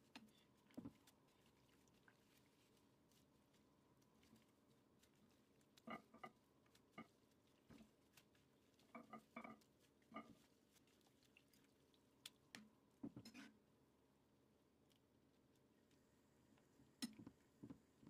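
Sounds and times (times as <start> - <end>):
small water splashes: 0.0 - 12.8.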